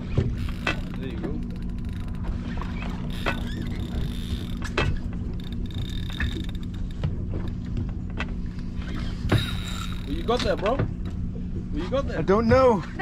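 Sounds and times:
boat engine humming: 0.0s - 13.0s
fishing reel gears creaking and clicking: 0.3s - 7.6s, 9.3s - 11.2s.

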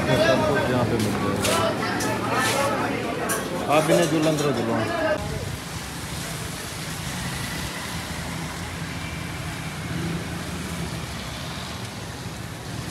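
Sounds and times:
cars passing on wet street: 0.0s - 12.9s
rain: 5.2s - 12.9s
motorbike passing: 5.6s - 12.9s.

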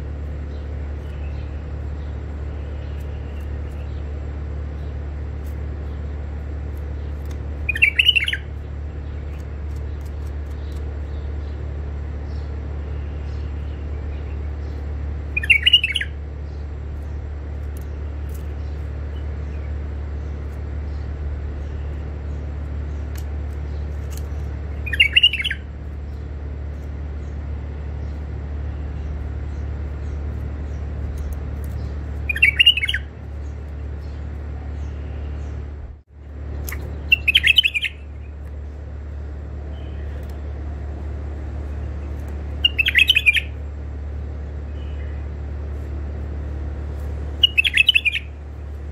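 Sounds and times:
steady low hum: 0.0s - 48.9s
bird short calls: 47.4s - 48.3s.

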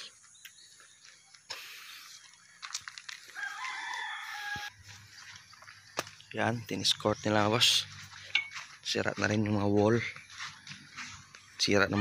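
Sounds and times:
rooster crowing: 3.3s - 4.9s.

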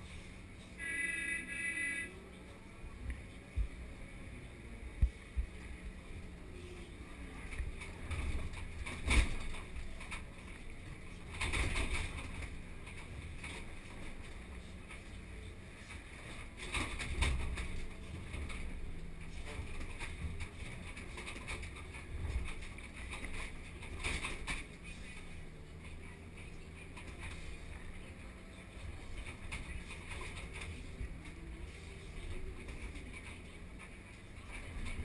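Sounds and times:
excavator diesel engine droning: 0.0s - 16.6s.

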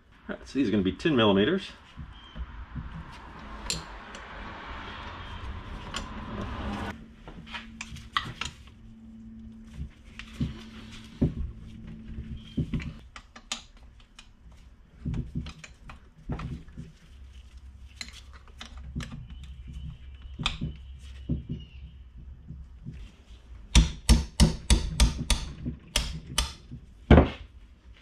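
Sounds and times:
rustling: 13.9s - 23.6s.

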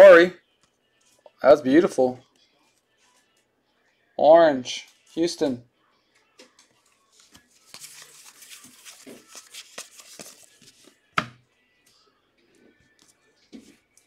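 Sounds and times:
cards rustling in plastic sleeves: 6.6s - 11.0s.

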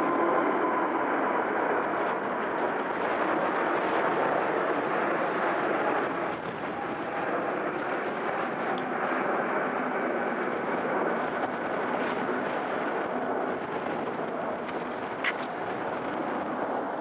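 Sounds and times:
jet airliner climbing overhead: 0.0s - 17.0s.

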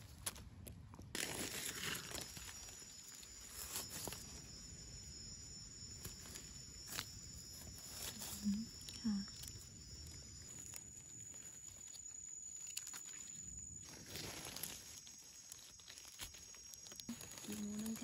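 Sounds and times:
dry leaves rustling: 1.2s - 5.0s, 5.9s - 18.0s
twigs and blade clicking: 5.9s - 18.0s.

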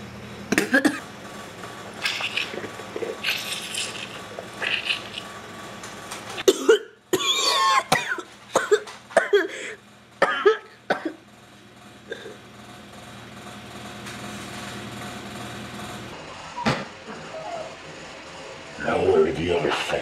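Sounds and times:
person coughing and gasping: 0.5s - 1.0s, 6.4s - 11.2s, 12.1s - 12.4s.

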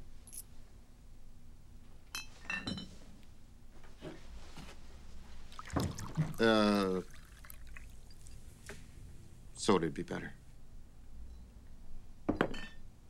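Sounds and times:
glasses clinking: 12.3s - 12.8s.

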